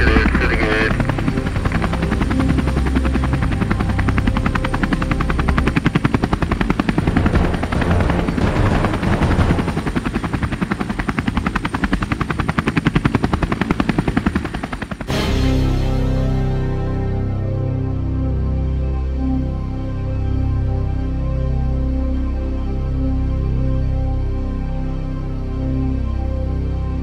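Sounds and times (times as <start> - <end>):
soft music: 0.0 - 10.6, 15.1 - 27.0
helicopter rotor chopping: 0.0 - 16.8.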